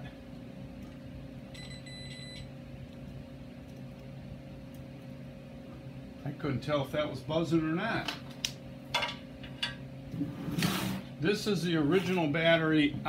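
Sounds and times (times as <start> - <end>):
steady low hum: 0.0 - 13.0
multimeter continuity beep: 1.5 - 2.5.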